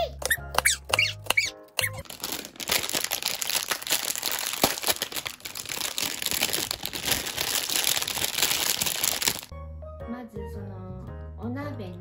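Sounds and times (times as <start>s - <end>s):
onion wedges crackling: 0.3s - 9.5s.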